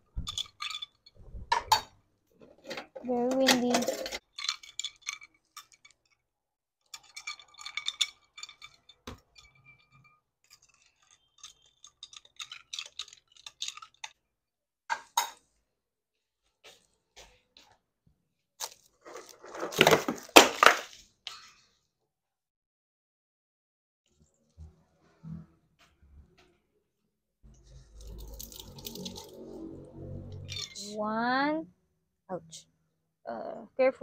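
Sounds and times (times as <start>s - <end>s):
skewers scraping and tapping a pan: 0.0s - 14.2s, 14.9s - 15.6s, 18.6s - 21.8s, 27.6s - 29.6s, 30.4s - 30.8s.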